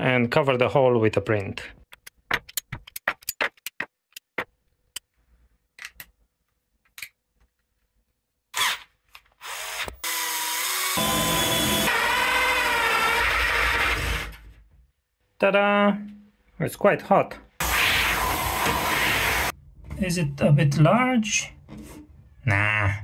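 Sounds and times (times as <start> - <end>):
power drill whining: 9.4 - 14.4, 17.6 - 19.5.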